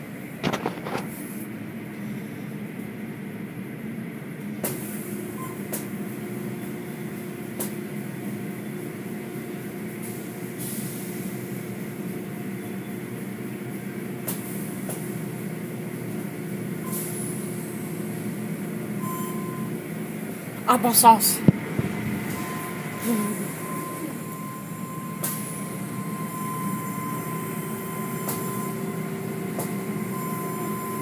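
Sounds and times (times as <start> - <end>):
car wash machine hum: 17.2 - 31.0.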